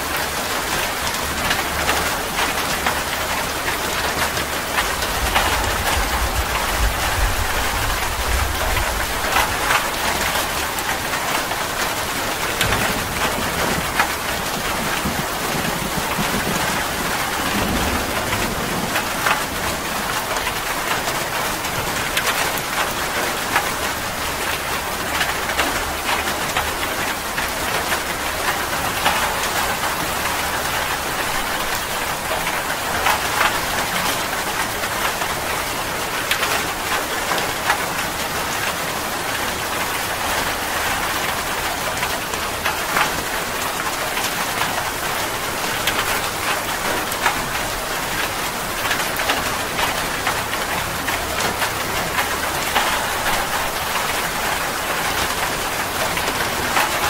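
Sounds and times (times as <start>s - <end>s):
heavy rain on leaves: 0.0s - 57.0s
raindrops tapping: 0.2s - 57.0s
distant thunder rumble: 12.5s - 21.1s.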